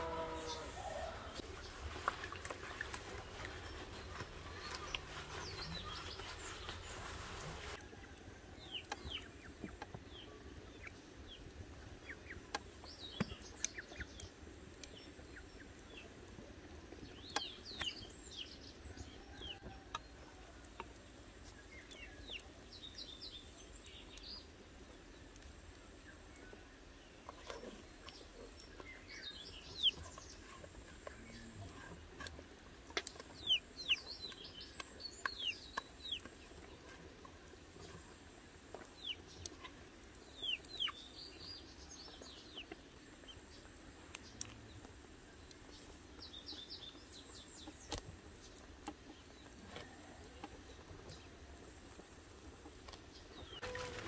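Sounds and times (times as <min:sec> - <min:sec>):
chickens clucking: 0:52.5 - 0:54.0.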